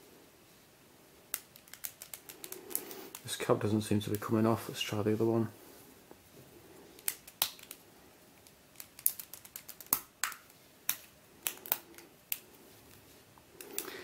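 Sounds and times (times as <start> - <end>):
plastic puzzle clicks and taps: 1.3 - 3.2.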